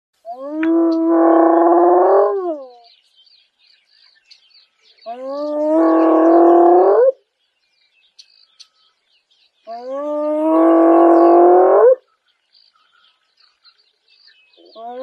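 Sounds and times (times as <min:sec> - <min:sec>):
faint birds chirping: 0:00.2 - 0:15.0.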